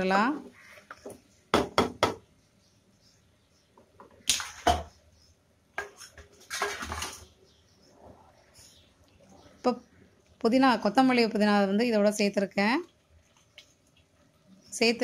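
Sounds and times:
spoon scraping pot: 0:05.7 - 0:08.8.

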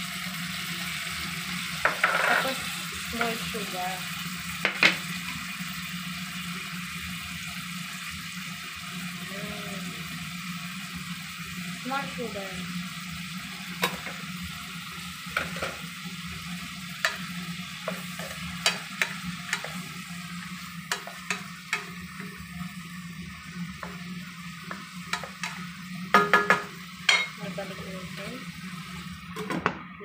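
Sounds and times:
vegetables sizzling in hot oil: 0:00.0 - 0:29.7
wooden spatula knocking a pan: 0:24.7 - 0:27.4.

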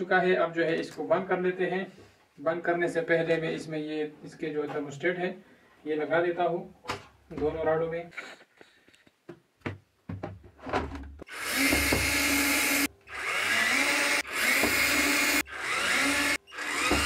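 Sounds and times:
cordless drill driving screws: 0:11.3 - 0:17.0.

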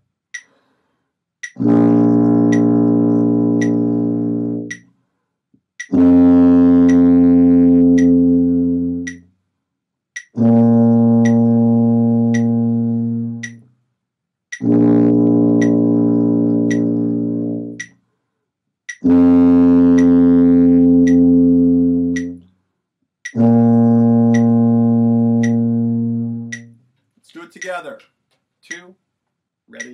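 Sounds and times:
metronome ticking: 0:00.3 - 0:00.6, 0:01.4 - 0:01.8, 0:02.5 - 0:02.8, 0:03.5 - 0:04.9, 0:05.8 - 0:06.1, 0:06.8 - 0:07.1, 0:07.9 - 0:08.3, 0:09.0 - 0:09.3, 0:10.2 - 0:11.6, 0:12.2 - 0:13.7, 0:14.5 - 0:18.0, 0:18.9 - 0:19.2, 0:19.9 - 0:20.2, 0:21.0 - 0:21.4, 0:22.0 - 0:22.5, 0:23.2 - 0:29.0
tuba playing long notes: 0:01.6 - 0:04.8, 0:05.9 - 0:09.2, 0:10.4 - 0:13.6, 0:14.6 - 0:17.8, 0:19.0 - 0:22.4, 0:23.4 - 0:26.7.

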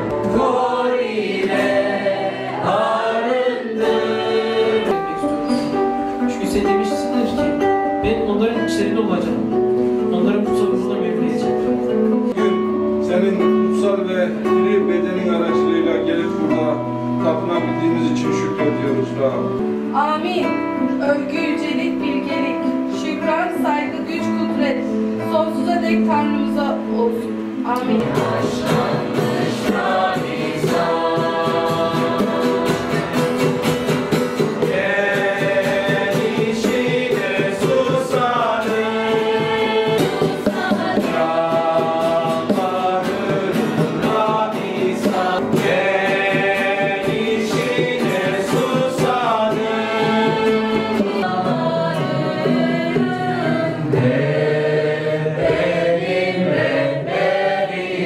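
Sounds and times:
congregation singing: 0:00.0 - 0:08.2, 0:08.8 - 0:20.0, 0:26.8 - 0:58.0
strummed acoustic guitars: 0:00.0 - 0:58.0.

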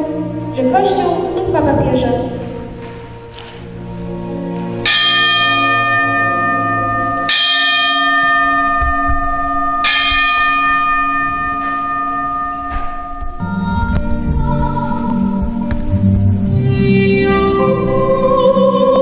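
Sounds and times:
church bell tolling: 0:04.8 - 0:15.1.

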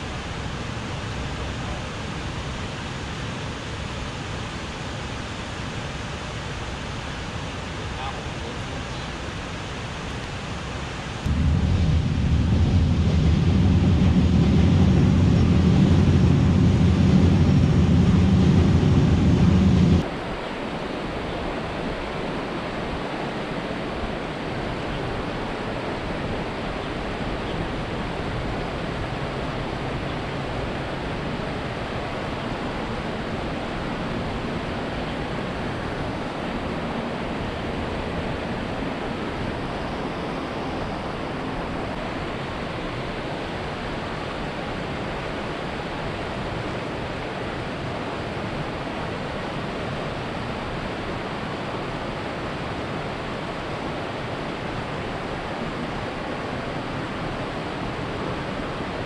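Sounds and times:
water: 0:00.0 - 0:15.1, 0:20.0 - 0:59.0
wind: 0:00.0 - 0:59.0
train rumbling over bridge: 0:11.2 - 0:20.1.

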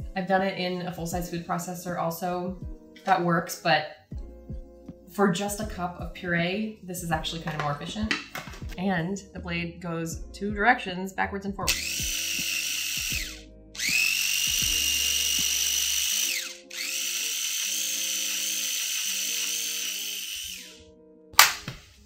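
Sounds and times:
soft background music: 0:00.0 - 0:22.0
electric chopper motor whining: 0:11.7 - 0:20.8.

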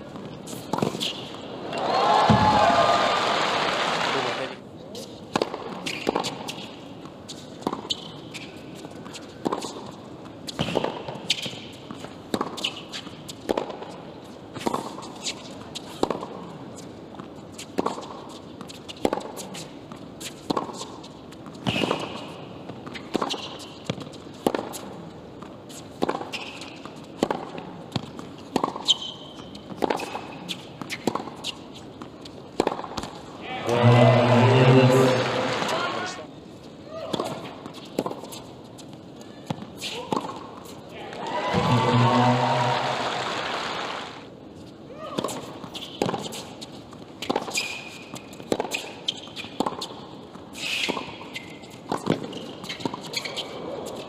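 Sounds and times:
quiet crowd noise: 0:00.0 - 0:10.6
tennis ball bouncing on court: 0:00.1 - 0:01.5, 0:05.3 - 0:08.4, 0:09.0 - 0:14.0, 0:15.8 - 0:16.4, 0:17.1 - 0:34.4, 0:37.1 - 0:42.1, 0:45.2 - 0:50.2, 0:50.8 - 0:54.0
racquets striking tennis ball: 0:00.2 - 0:02.6, 0:05.3 - 0:15.1, 0:15.8 - 0:16.4, 0:17.7 - 0:36.0, 0:37.1 - 0:44.1, 0:45.2 - 0:53.2.

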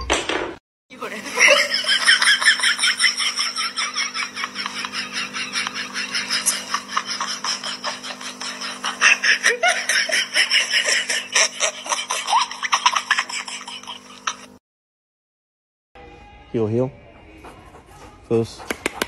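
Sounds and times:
people laughing: 0:01.1 - 0:14.5
steady low hum: 0:01.3 - 0:14.5.

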